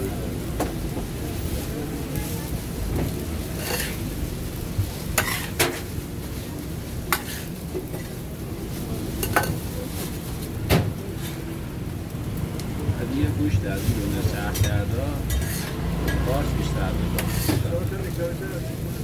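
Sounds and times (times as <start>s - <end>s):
meat frying hiss: 0.0s - 19.0s
metal utensil scraping pan: 3.5s - 4.0s, 5.2s - 5.9s, 7.1s - 8.1s, 14.2s - 17.7s.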